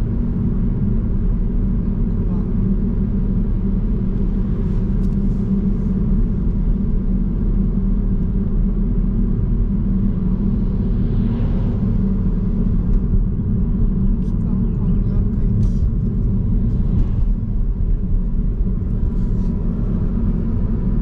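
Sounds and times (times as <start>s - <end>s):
road and engine rumble: 0.0s - 21.0s.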